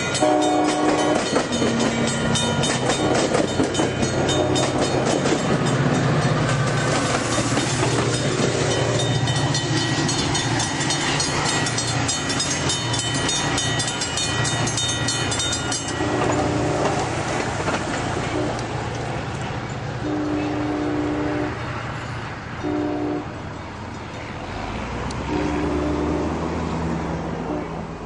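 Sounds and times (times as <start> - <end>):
train wheels clattering over rails: 0.0 - 20.0.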